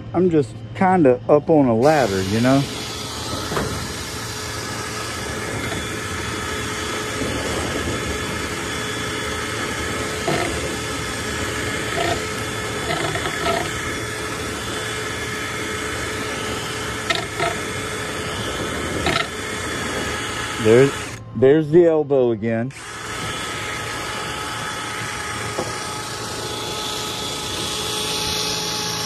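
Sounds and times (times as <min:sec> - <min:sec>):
power drill whirring: 0:01.8 - 0:21.3, 0:22.7 - 0:29.0
rod rattling in a pipe: 0:10.2 - 0:14.5, 0:17.0 - 0:17.7, 0:18.9 - 0:19.3.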